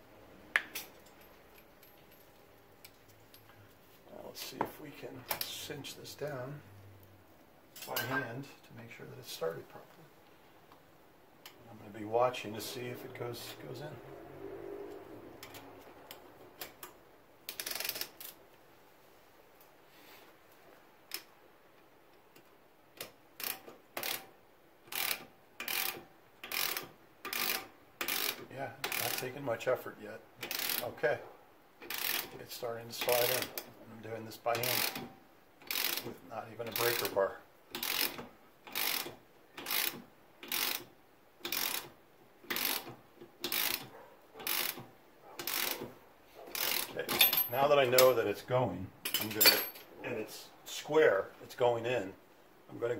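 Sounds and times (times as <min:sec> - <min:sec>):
ratchet wrench clicking: 0:17.5 - 0:18.4, 0:23.0 - 0:24.3, 0:24.9 - 0:29.3, 0:30.4 - 0:30.9, 0:31.8 - 0:32.3, 0:34.5 - 0:36.1, 0:36.7 - 0:44.8, 0:45.4 - 0:45.9, 0:46.5 - 0:47.5.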